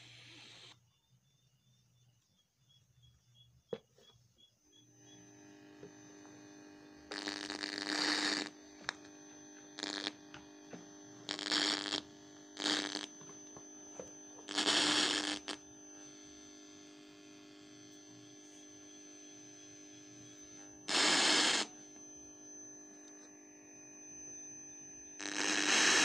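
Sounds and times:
bursts of hiss: 0.0s - 0.8s, 7.1s - 8.6s, 9.8s - 10.2s, 11.3s - 13.4s, 14.4s - 15.6s, 20.9s - 21.8s, 25.2s - 26.0s
radio speaker hum: 0.0s - 0.8s, 4.9s - 26.0s.

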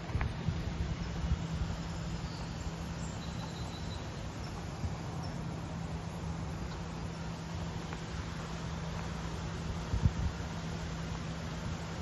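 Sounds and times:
constant low hum: 0.0s - 12.0s
steady hissing wash: 0.0s - 12.0s
faint high chirps: 1.9s - 5.5s.

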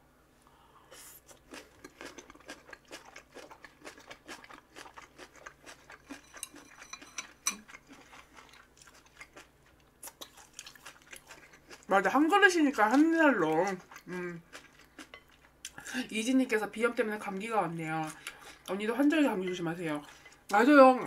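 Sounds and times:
person chewing crunchy food: 1.0s - 15.8s.

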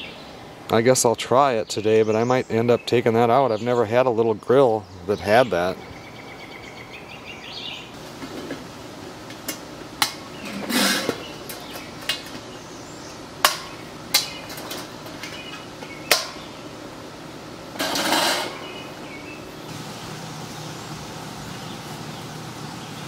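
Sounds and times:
metal grill parts clanking: 9.3s - 12.5s, 13.4s - 16.5s, 17.7s - 18.8s
metal scraping on metal: 10.4s - 11.2s, 17.8s - 18.6s.

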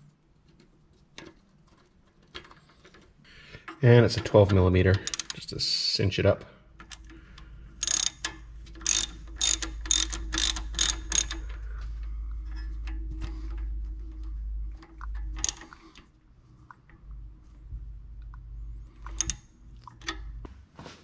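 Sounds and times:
ratcheting wrench clicking: 3.6s - 5.4s, 6.8s - 11.7s, 15.2s - 16.0s, 19.0s - 20.2s.

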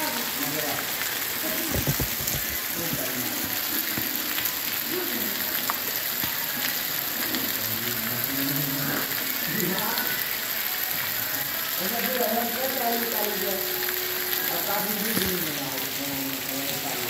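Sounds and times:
heavy rain on paving: 0.0s - 17.0s.

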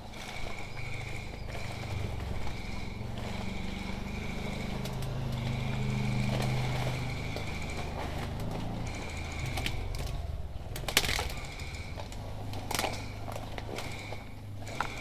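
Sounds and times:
footsteps in undergrowth: 0.1s - 15.0s.

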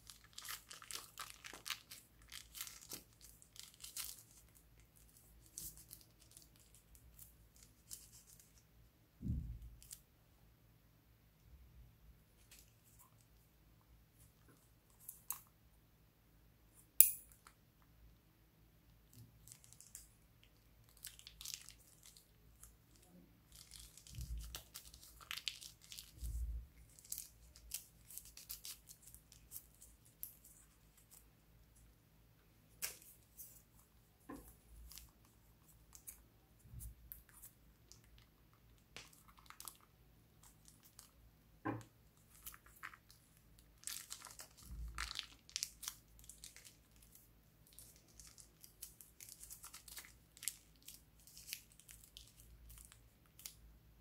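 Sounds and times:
plastic bags rustling and crinkling: 0.0s - 8.6s, 20.9s - 31.3s, 32.8s - 53.6s.

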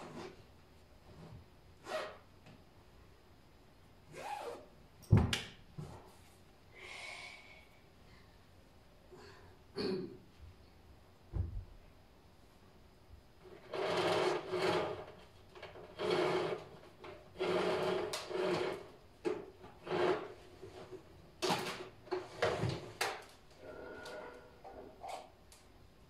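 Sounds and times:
vacuum cleaner cord scraping: 13.5s - 25.3s.

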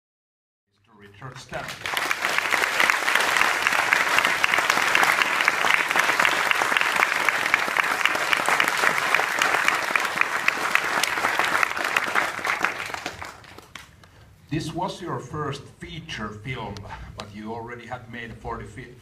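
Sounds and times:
audience applauding: 1.2s - 14.0s.

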